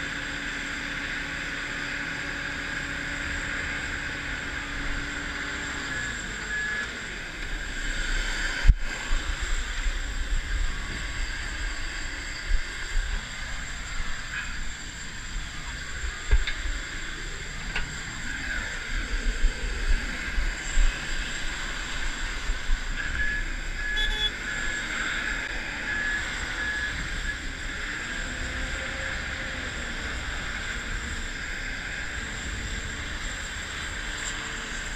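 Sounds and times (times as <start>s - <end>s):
jet engine whine: 0.0s - 34.9s
high beeps: 23.2s - 24.4s.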